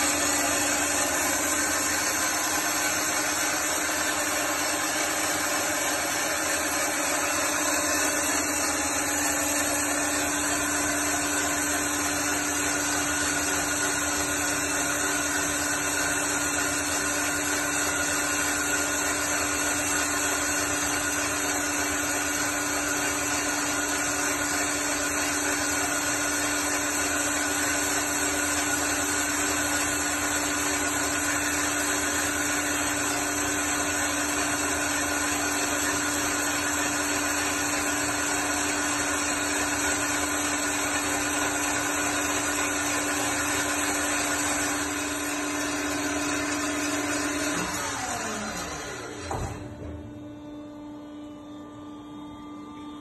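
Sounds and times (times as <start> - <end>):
coolant hissing: 0.0 - 47.7
bandsaw humming: 0.0 - 53.0.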